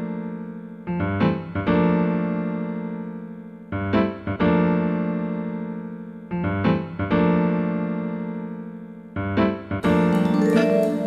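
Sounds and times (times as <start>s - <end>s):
electric piano chords: 9.2s - 11.0s.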